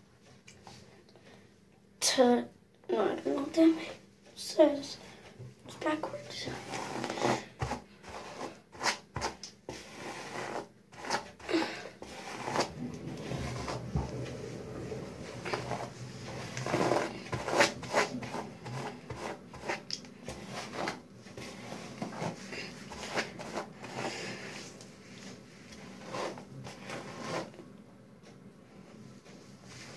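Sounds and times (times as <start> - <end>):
hairbrush swishing through hair: 12.0 - 27.6.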